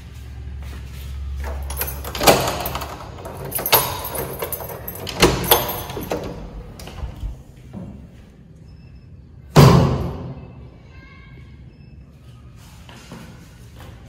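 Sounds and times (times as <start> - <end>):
key clicking in door lock: 1.4 - 7.4
keys jangling: 1.4 - 7.4.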